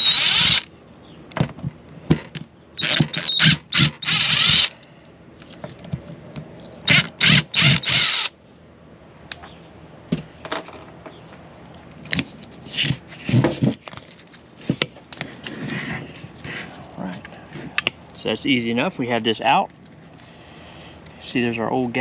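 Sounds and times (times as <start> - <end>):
cordless drill running: 0.0 - 0.7, 2.8 - 4.7, 6.9 - 8.3.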